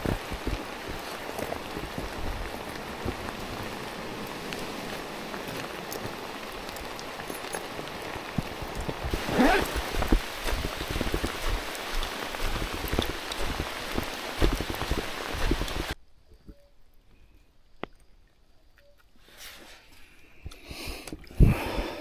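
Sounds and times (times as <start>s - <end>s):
heavy rain patter: 0.0s - 16.0s.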